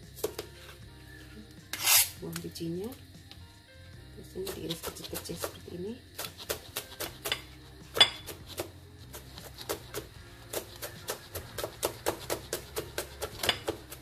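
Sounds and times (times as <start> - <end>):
knife chopping on plastic board: 4.4 - 5.6, 6.2 - 14.0.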